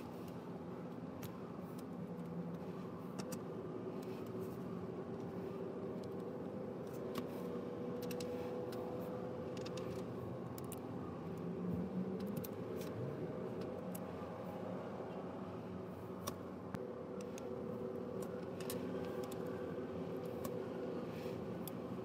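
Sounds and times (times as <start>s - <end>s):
plastic parts clicking together: 1.2s - 4.5s, 7.9s - 11.5s, 12.1s - 13.0s, 17.2s - 19.6s.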